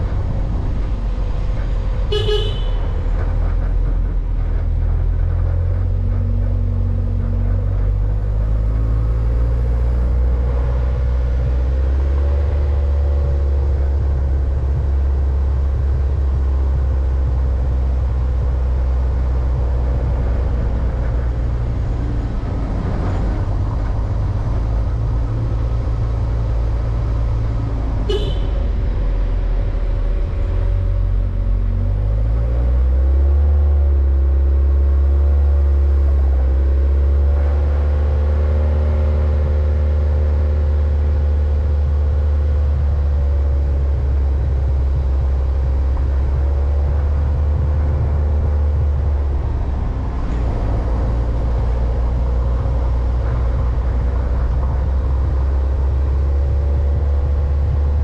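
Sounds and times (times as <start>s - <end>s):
vehicle engine running: 0.0s - 58.0s.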